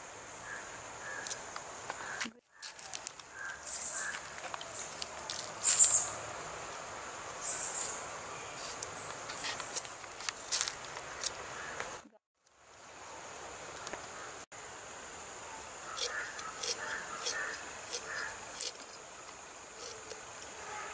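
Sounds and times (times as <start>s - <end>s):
insects chirring: 0.0s - 20.9s
knife scraping wooden board: 15.8s - 19.0s, 19.8s - 20.8s.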